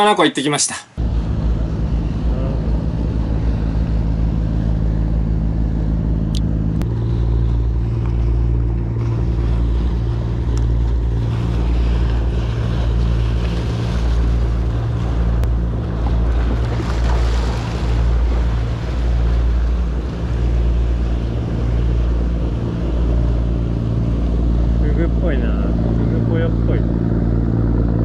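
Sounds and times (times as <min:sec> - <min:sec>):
boat engine drone: 0:01.0 - 0:28.0
waves washing against seawall: 0:06.8 - 0:26.6.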